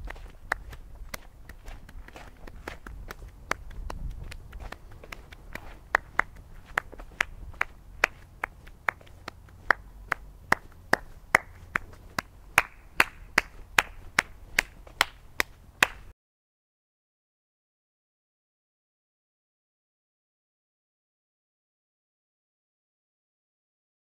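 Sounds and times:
low hum: 0:00.0 - 0:16.1.

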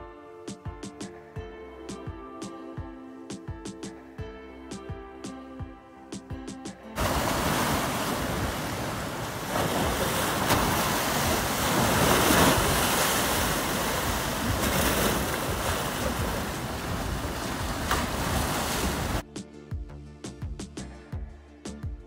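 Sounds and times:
surf washing onto shore: 0:07.0 - 0:19.2
wind buffeting microphone: 0:07.0 - 0:19.2.

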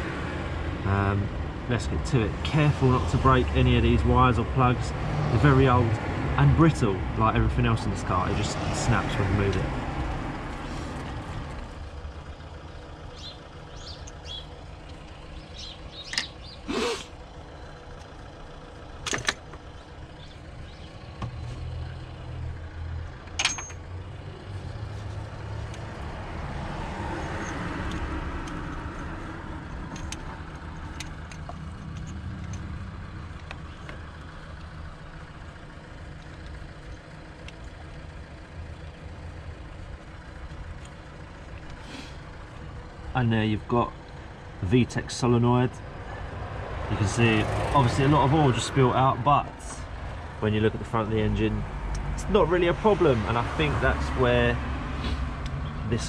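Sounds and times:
low traffic rumble: 0:00.0 - 0:56.0
vehicle passing: 0:02.3 - 0:13.0, 0:23.8 - 0:33.4, 0:45.9 - 0:56.0.

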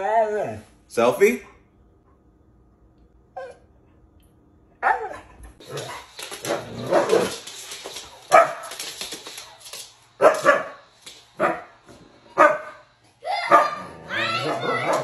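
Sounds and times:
dog barking and vocalizing: 0:13.5 - 0:15.0.

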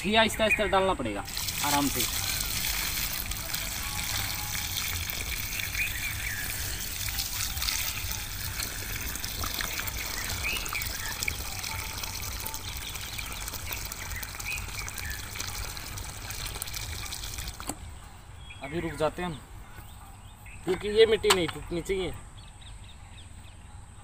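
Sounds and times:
water trickling onto wet soil: 0:01.3 - 0:17.8.

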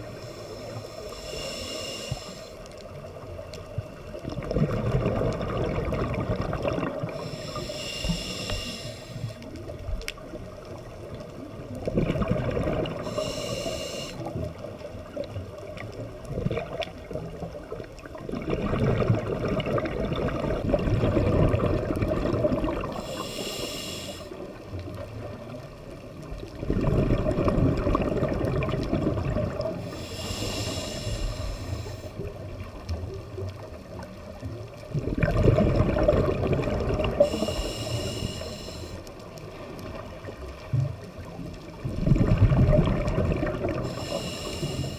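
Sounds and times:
regulator hiss: 0:00.0 - 0:02.8, 0:07.1 - 0:09.6, 0:13.0 - 0:14.4, 0:22.9 - 0:24.4, 0:29.8 - 0:32.4, 0:37.2 - 0:39.1, 0:43.8 - 0:44.9
bubbles gurgling underwater: 0:03.2 - 0:07.3, 0:09.7 - 0:13.3, 0:14.2 - 0:23.1, 0:24.5 - 0:30.0, 0:32.2 - 0:37.8, 0:39.4 - 0:44.9.

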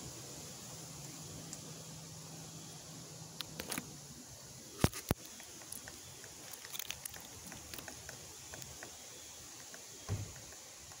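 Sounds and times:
woodpecker pecking tree trunk: 0:05.2 - 0:11.0
dull low thump: 0:10.1 - 0:10.4.

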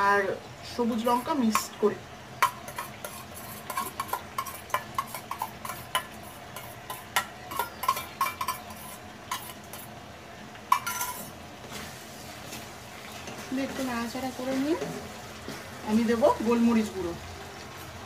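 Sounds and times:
spatula scraping frying pan: 0:02.4 - 0:10.0, 0:10.7 - 0:15.8.

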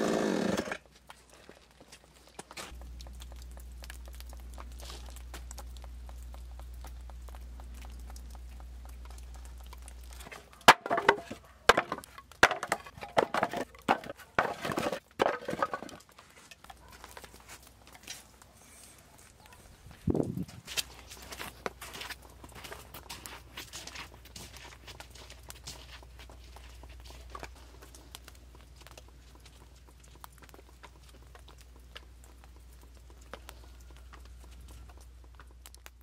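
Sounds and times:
low steady rumble: 0:02.7 - 0:15.0
firewood knocking and clattering: 0:09.6 - 0:17.2.

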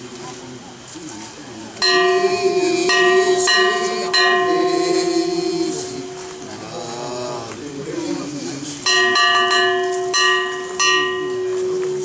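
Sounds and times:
small metal bell ringing: 0:01.8 - 0:06.7, 0:08.9 - 0:12.0.

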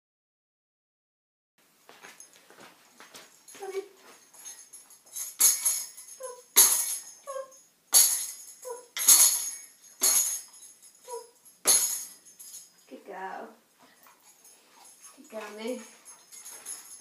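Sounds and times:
tambourine jingling: 0:02.2 - 0:13.0, 0:13.9 - 0:17.0
dog whining: 0:11.0 - 0:11.4.

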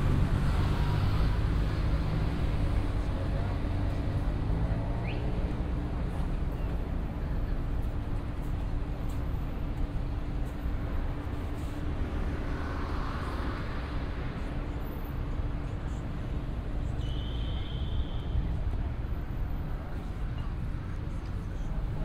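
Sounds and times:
vehicle passing by: 0:00.0 - 0:05.8
traffic rumble: 0:00.0 - 0:22.0.

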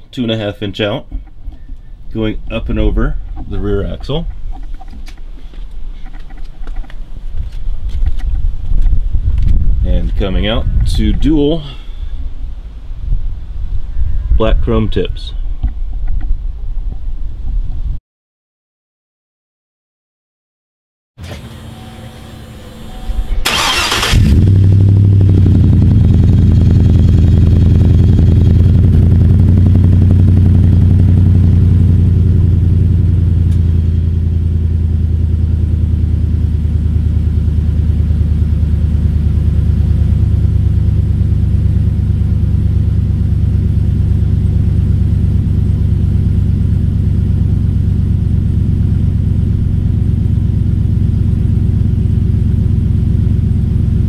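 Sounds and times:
starter motor cranking: 0:23.3 - 0:24.6
engine fast idling: 0:23.4 - 0:33.4.

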